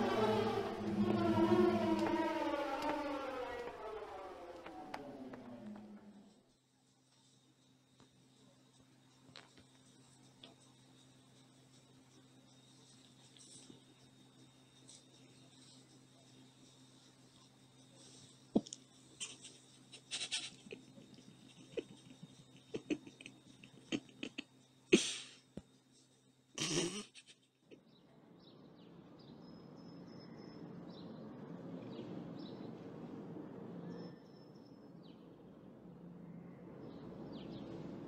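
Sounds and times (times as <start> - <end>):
low steady hum: 0.0 - 38.0
steady outdoor hiss: 0.0 - 38.0
faint high chirps: 27.7 - 32.8, 33.6 - 38.0.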